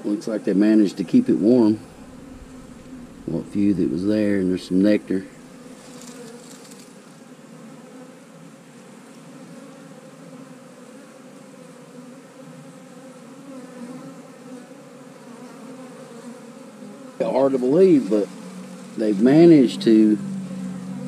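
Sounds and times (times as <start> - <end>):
honey bees buzzing: 0.0 - 21.0.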